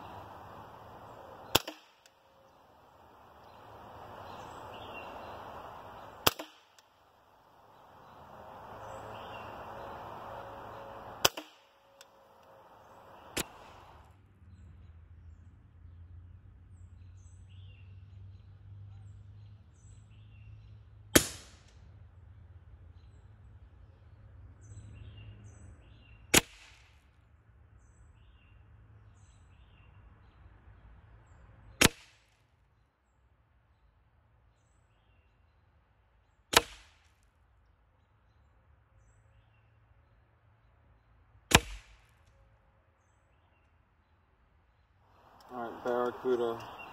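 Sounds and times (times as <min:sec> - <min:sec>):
air rifle shots: 0:00.0 - 0:02.2, 0:03.1 - 0:06.9, 0:07.6 - 0:14.0, 0:36.5 - 0:37.0, 0:41.5 - 0:42.1.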